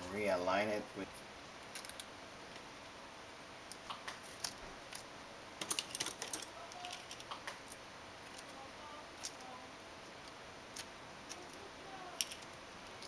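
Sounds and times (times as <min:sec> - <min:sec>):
plastic parts clicking and tapping: 0:05.6 - 0:07.7, 0:12.2 - 0:13.0
tools clicking: 0:12.2 - 0:12.5.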